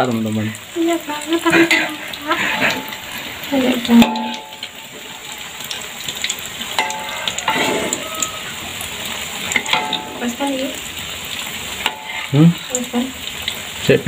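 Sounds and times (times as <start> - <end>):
food sizzling in oil: 0.0 - 14.0
spatula scraping and tapping pan: 1.5 - 10.8, 11.4 - 13.0.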